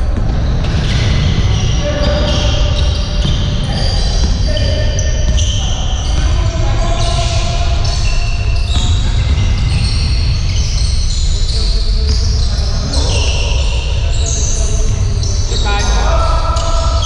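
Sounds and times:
basketball bouncing: 0.0s - 15.6s
sneakers squeaking on court: 0.0s - 17.0s
players calling out: 0.4s - 17.0s.

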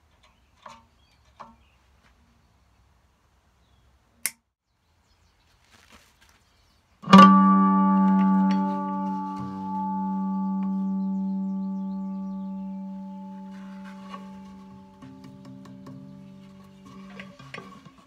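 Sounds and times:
guitar chord ringing: 7.0s - 17.7s.

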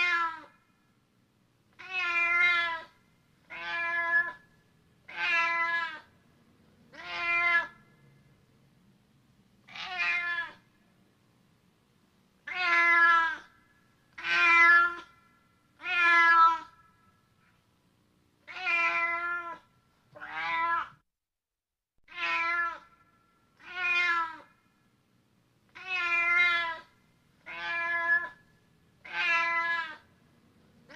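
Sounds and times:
cat meowing: 0.0s - 0.6s, 1.7s - 4.5s, 5.1s - 6.1s, 6.9s - 7.8s, 9.6s - 10.8s, 12.4s - 15.2s, 15.8s - 16.8s, 18.4s - 21.0s, 22.1s - 22.9s, 23.6s - 24.5s, 25.7s - 28.4s, 29.0s - 30.1s.

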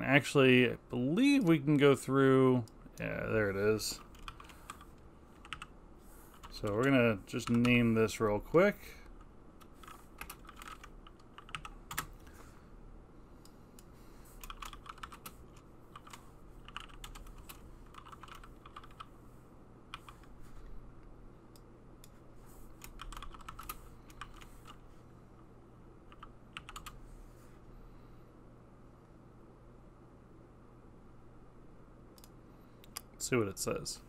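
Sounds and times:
faint low hum: 0.0s - 34.0s
computer keyboard typing: 4.0s - 5.7s, 6.3s - 7.8s, 9.6s - 12.3s, 14.4s - 19.1s, 19.9s - 20.3s, 22.8s - 24.8s, 26.1s - 27.0s.

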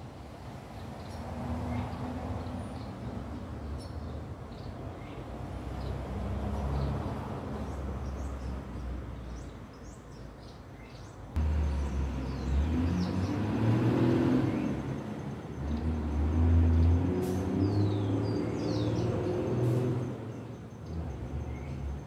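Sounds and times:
vehicle engine hum: 11.3s - 22.0s.

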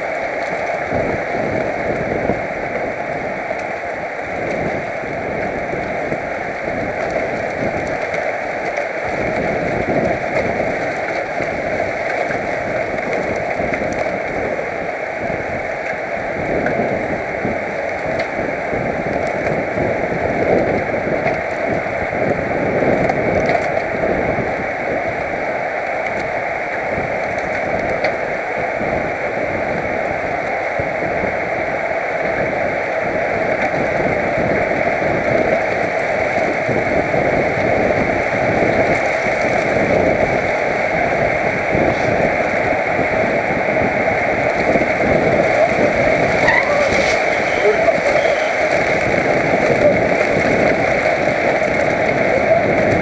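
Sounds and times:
wind rushing over microphone: 0.0s - 53.0s.

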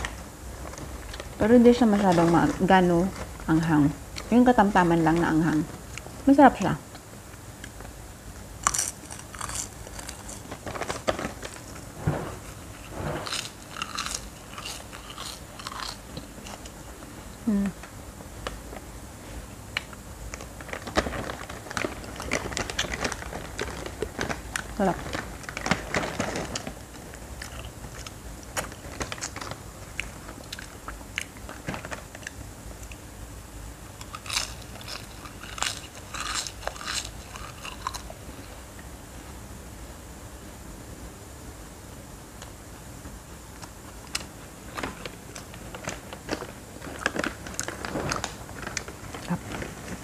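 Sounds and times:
plastic bag rustling: 0.0s - 5.9s, 9.0s - 16.6s, 20.4s - 30.8s, 31.4s - 32.2s, 44.6s - 50.0s
crispy snack crunching: 8.6s - 16.8s, 19.8s - 33.0s, 33.9s - 38.3s, 44.0s - 50.0s.

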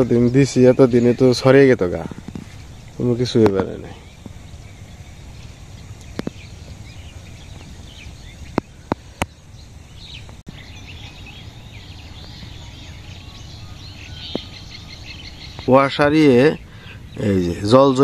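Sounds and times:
faint bird chirps: 0.0s - 18.0s.

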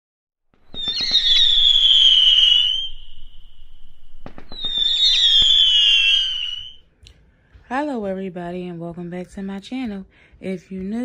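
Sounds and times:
firework cracks: 0.6s - 6.8s
firework high whistle: 0.6s - 6.9s.

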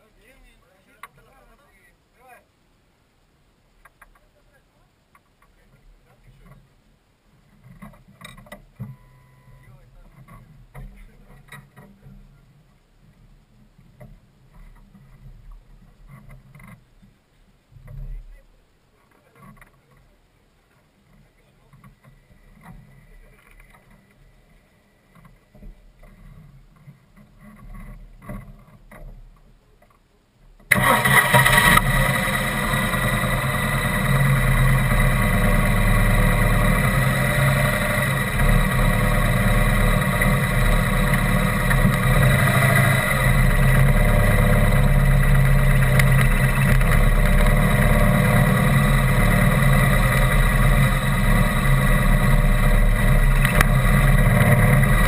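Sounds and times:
vehicle engine starting and running: 30.7s - 55.0s.

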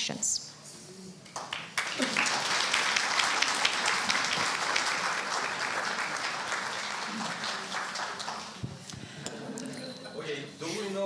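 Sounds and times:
audience applauding: 1.4s - 9.0s.

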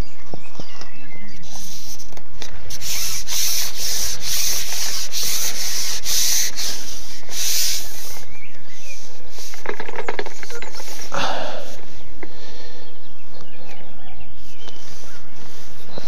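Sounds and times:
scratchy rubbing on microphone: 2.7s - 11.1s, 14.3s - 16.0s.

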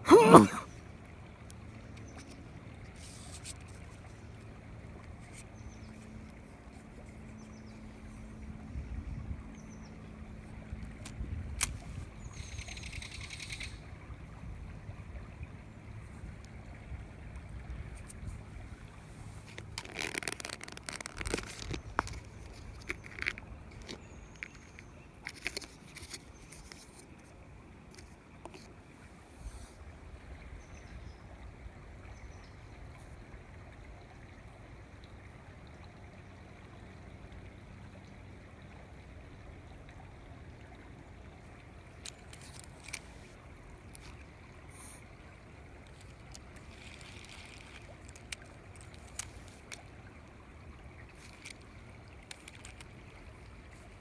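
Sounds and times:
low rumble and hiss: 0.0s - 19.8s, 21.0s - 54.0s
water trickling: 0.0s - 54.0s
short clicks and rustles: 19.4s - 28.7s, 42.0s - 44.2s, 45.8s - 49.9s, 51.1s - 53.0s.

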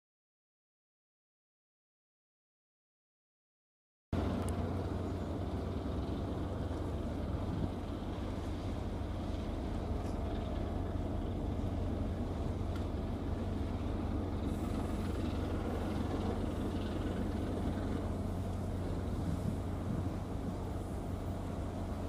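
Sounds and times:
ship engines droning: 4.2s - 22.0s.

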